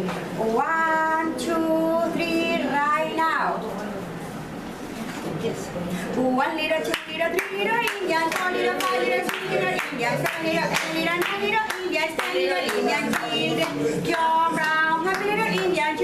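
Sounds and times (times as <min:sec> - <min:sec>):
women singing together: 0:00.0 - 0:03.6, 0:06.2 - 0:16.0
hands clapping in time: 0:06.9 - 0:13.8.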